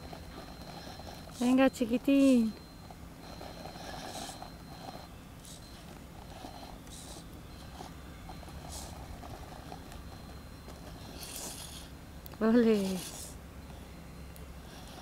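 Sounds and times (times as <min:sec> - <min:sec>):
electric motor and gears whining: 0:00.0 - 0:15.0.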